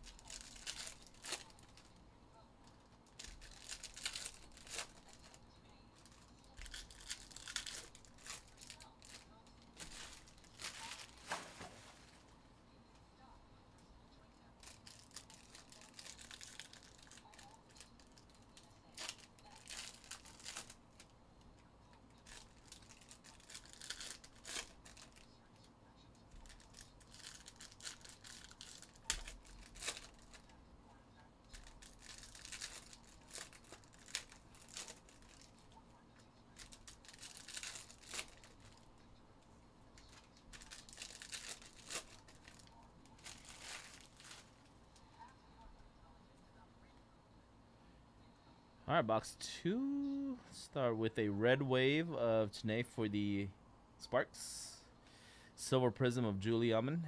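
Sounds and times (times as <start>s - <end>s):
wrappers tearing and crinkling: 0.0s - 2.0s, 3.0s - 5.4s, 6.0s - 12.2s, 14.6s - 21.1s, 22.1s - 25.4s, 26.3s - 30.6s, 31.5s - 35.7s, 36.5s - 38.9s, 40.0s - 44.7s.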